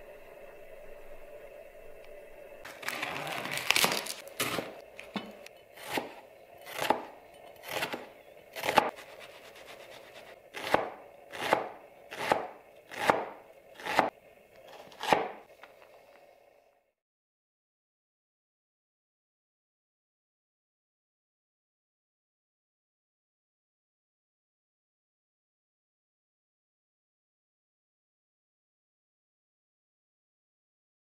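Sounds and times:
knife chopping onion on board: 3.8s - 14.1s, 14.7s - 15.4s.

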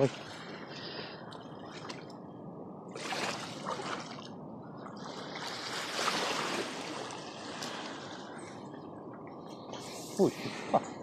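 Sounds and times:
river water rushing: 2.9s - 10.0s.

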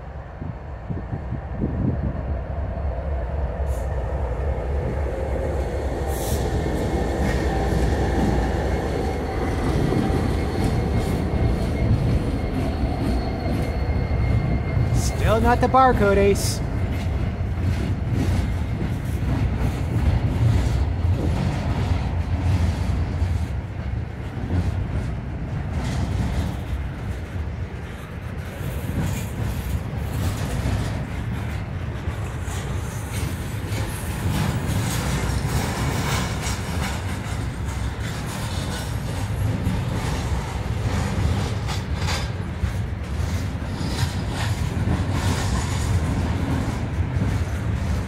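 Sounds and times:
freight train wheels rumbling: 0.0s - 48.0s
wheels clicking over rail joints: 16.9s - 48.0s.

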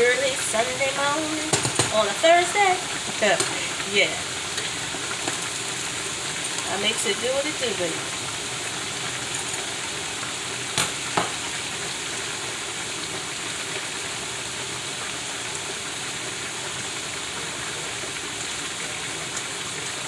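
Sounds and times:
steaks frying in oil: 0.0s - 20.0s.

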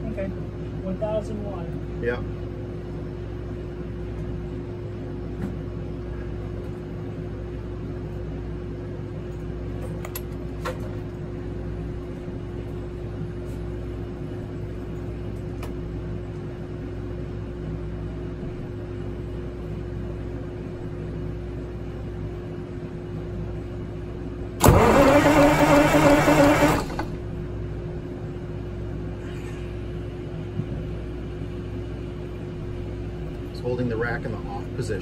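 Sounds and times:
steady low hum: 0.0s - 35.0s
diesel engine cranking: 24.6s - 27.2s.

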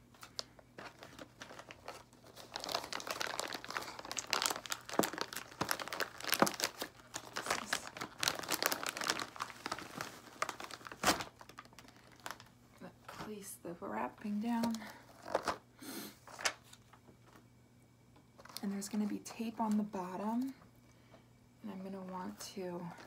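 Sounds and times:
plastic bag crinkling: 0.1s - 13.3s, 14.6s - 15.6s.

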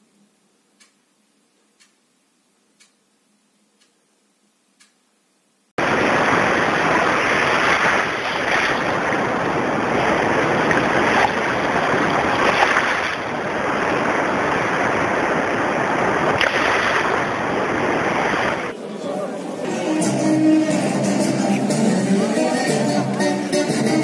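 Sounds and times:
surf washing over sand: 5.8s - 18.8s.

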